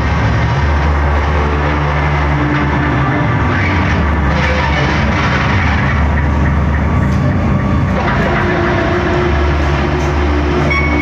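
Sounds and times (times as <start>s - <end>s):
electric guitar ambient noise: 0.0s - 11.0s
steady low drone: 0.0s - 11.0s
high tone: 10.0s - 11.0s.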